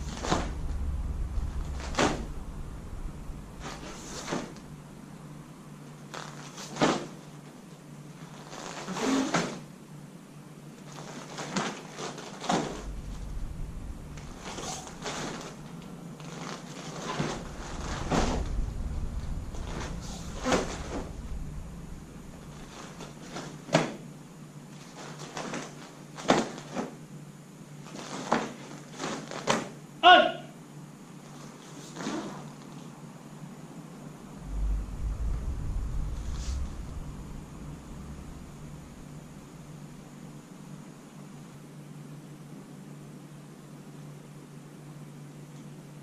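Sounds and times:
low rumble: 0.0s - 6.0s, 12.5s - 24.7s, 33.8s - 41.6s.

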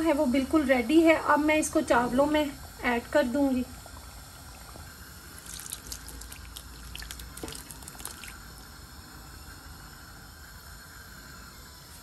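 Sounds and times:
wet drips and plops: 5.4s - 8.5s.

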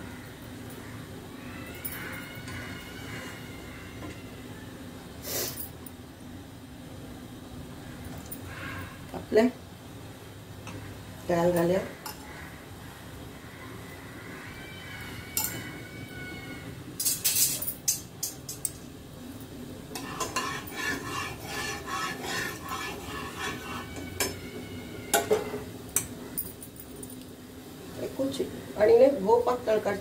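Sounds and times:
metal utensils clinking: 15.4s - 15.7s, 17.0s - 18.8s, 20.0s - 24.4s
stirring and scraping: 19.9s - 25.7s.

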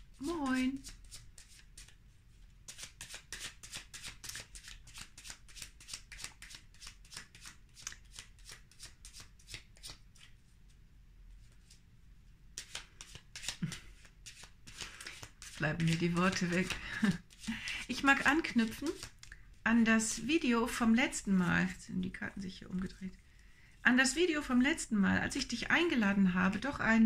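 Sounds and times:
cards being shuffled: 0.3s - 2.0s, 2.6s - 10.4s, 12.6s - 19.4s.

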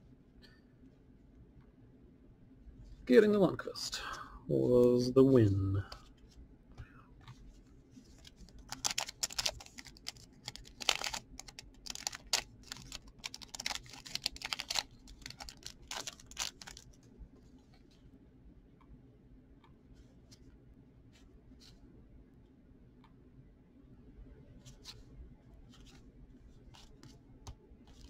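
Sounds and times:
cards being flipped through: 8.1s - 17.0s.

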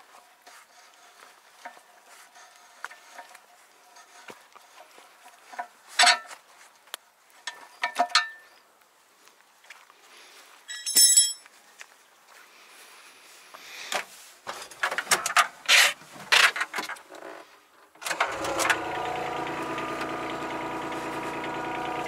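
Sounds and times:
wrench clinking on metal: 7.5s - 8.5s, 10.7s - 11.5s.

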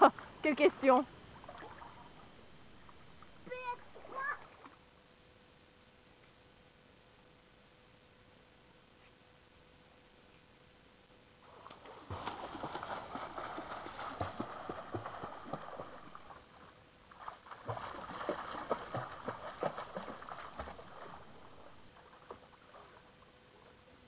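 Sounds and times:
child splashing in pool water: 11.5s - 16.3s, 17.2s - 21.5s.

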